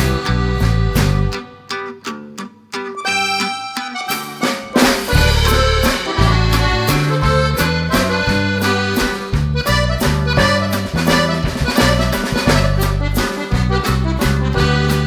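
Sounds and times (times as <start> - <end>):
instrumental music with beat: 0.0 - 15.0.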